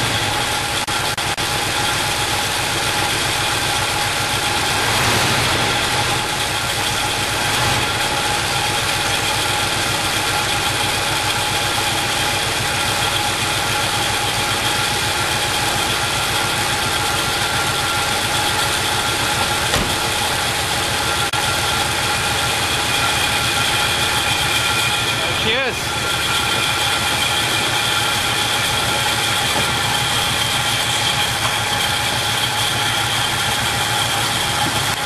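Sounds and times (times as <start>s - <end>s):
car engine idling: 0.0s - 35.0s.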